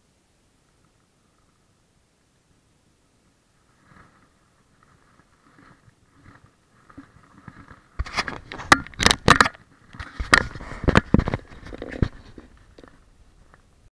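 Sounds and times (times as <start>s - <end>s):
hand scraping camera microphone: 3.6s - 13.7s.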